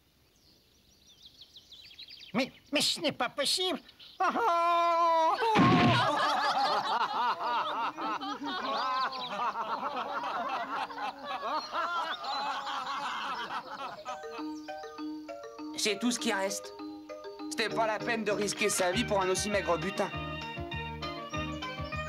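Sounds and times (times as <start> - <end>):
man wailing: 4.2 - 6.3
crowd laughing: 4.2 - 14.7.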